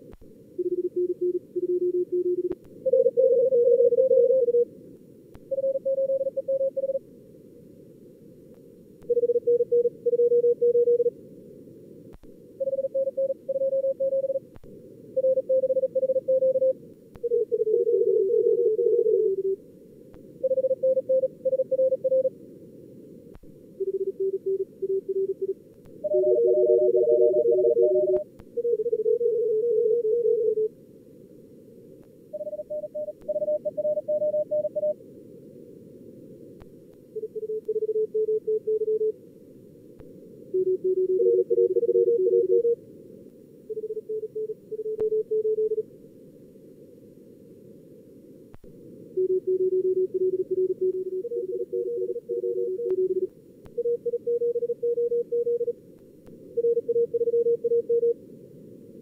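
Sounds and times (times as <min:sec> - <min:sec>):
receiver hiss: 0:00.0 - 0:29.2
morse code tones: 0:23.8 - 0:28.8, 0:32.4 - 0:35.0, 0:40.6 - 0:42.8, 0:49.2 - 0:55.7, 0:56.6 - 0:58.2.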